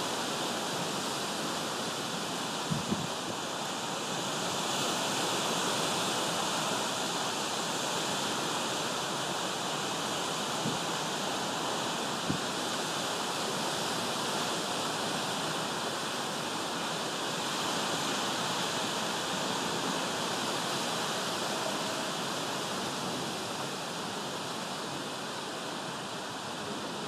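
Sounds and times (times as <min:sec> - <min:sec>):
steady rain falling: 0:00.0 - 0:27.0.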